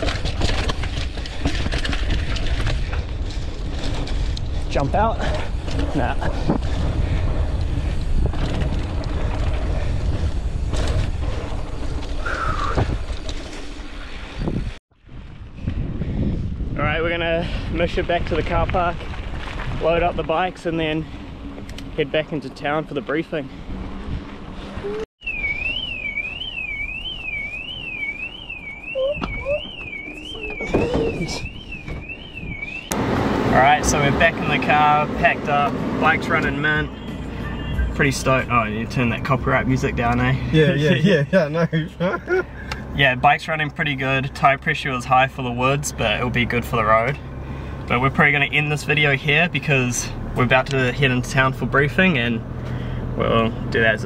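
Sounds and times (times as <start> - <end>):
wind buffeting microphone: 0.0 - 13.4, 14.0 - 22.0
bike knocks and rattles: 0.0 - 14.0
car alarm sweeping tone: 25.2 - 33.1, 36.3 - 38.2
short falling squeal: 28.9 - 32.9.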